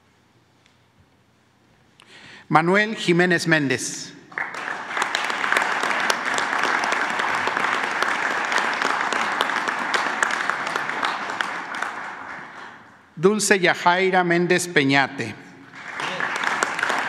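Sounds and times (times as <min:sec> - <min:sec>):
audience applauding: 0:04.3 - 0:13.2, 0:15.6 - 0:17.0.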